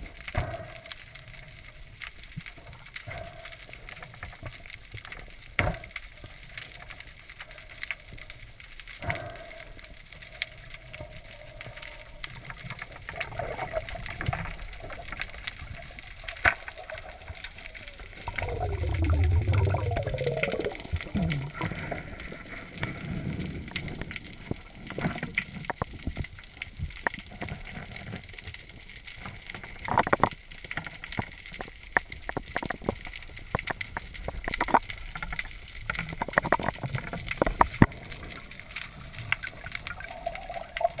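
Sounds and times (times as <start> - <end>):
sharp underwater clicks and crackles: 0.0 - 41.0
low water rush: 17.0 - 24.4
muffled shifting low sound: 18.2 - 21.8.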